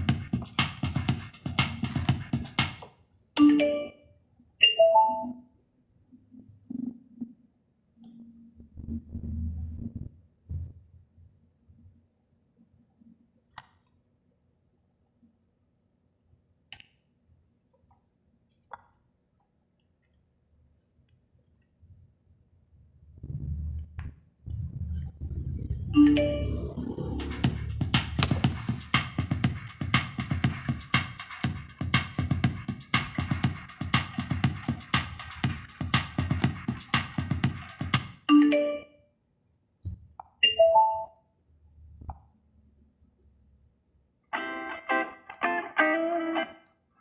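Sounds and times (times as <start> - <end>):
electronic music with drum-machine beat: 0.0 - 2.8, 24.6 - 38.2.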